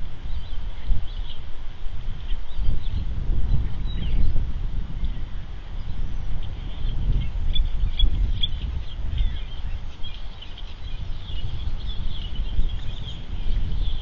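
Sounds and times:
bird chirps: 5.0 - 14.0.

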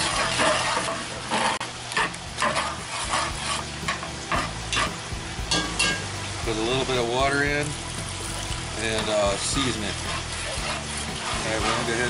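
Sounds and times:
metal spatula scraping a pot: 0.0 - 5.0, 8.2 - 12.0.

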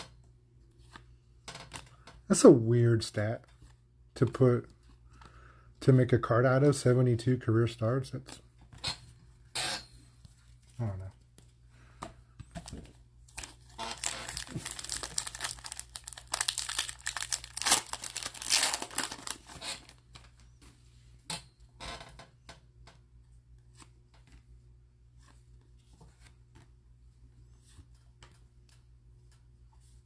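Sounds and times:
plastic wrapper tearing and crinkling: 13.3 - 20.0.

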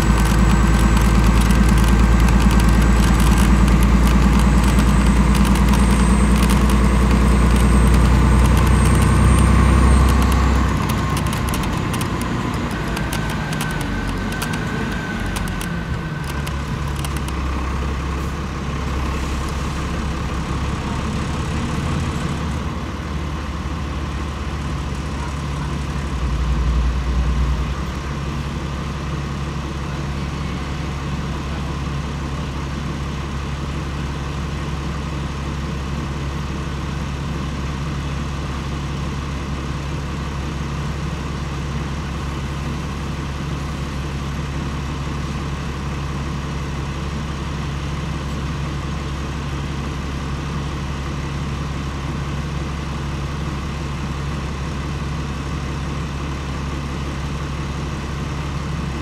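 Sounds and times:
bus diesel engine idling: 0.0 - 59.0
low engine rumble: 0.0 - 59.0.

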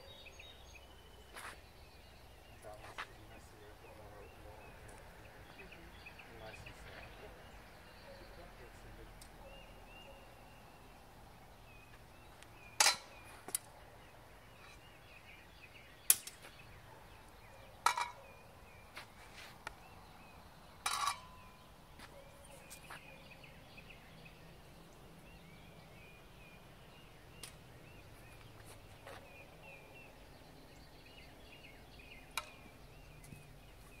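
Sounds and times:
birds chirping: 0.0 - 34.0
steel swords clanging: 20.8 - 21.4.

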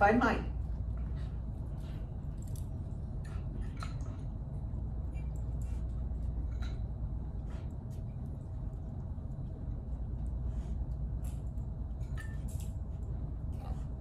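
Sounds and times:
low room hum: 0.0 - 14.0
dog claws clicking on floor: 1.8 - 4.3, 11.1 - 13.8.

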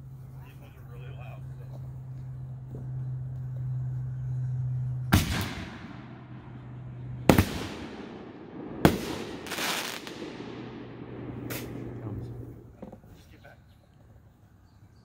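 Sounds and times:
firework booms echoing: 5.1 - 6.3, 7.3 - 12.2
firework crackling: 7.3 - 12.6.

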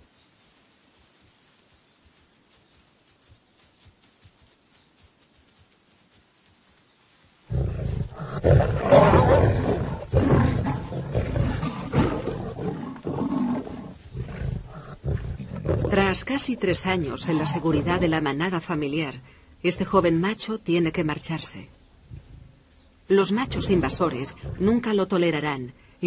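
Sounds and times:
lions fighting and roaring: 7.5 - 18.3, 23.2 - 24.9.

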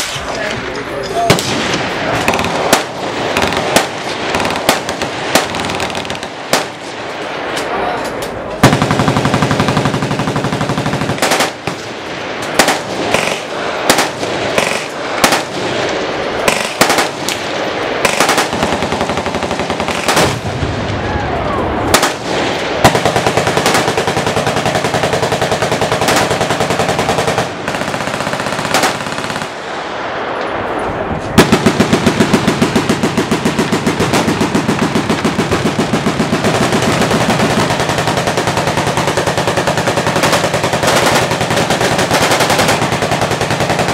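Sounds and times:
machine guns firing bursts: 2.2 - 6.8, 8.6 - 11.9, 12.6 - 17.3, 18.0 - 20.5, 21.9 - 29.6, 31.4 - 43.9
nearby machine gun sustained burst: 2.3 - 6.8, 8.6 - 11.8, 18.0 - 20.6, 22.8 - 29.6, 31.4 - 43.9.

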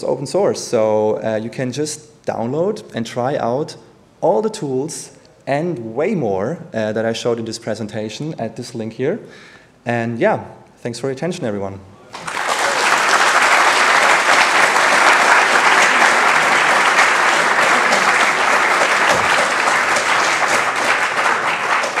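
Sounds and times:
audience applauding: 12.1 - 22.0.

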